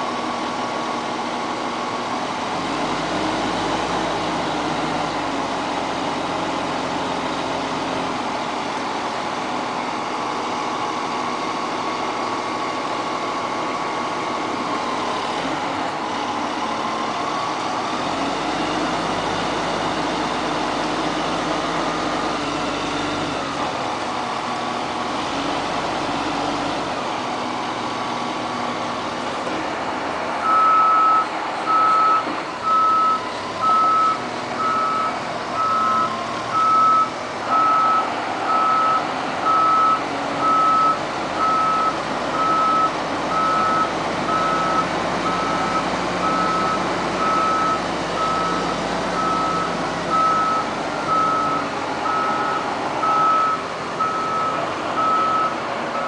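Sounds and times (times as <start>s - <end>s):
heavy machinery engine running: 0.0s - 56.0s
reversing alarm beeping: 30.4s - 56.0s.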